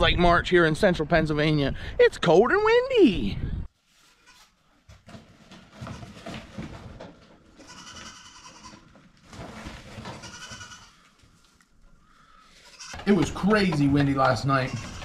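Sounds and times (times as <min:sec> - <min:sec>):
goats bleating: 0:07.6 - 0:08.9, 0:10.2 - 0:11.1, 0:12.6 - 0:13.0, 0:14.2 - 0:15.0.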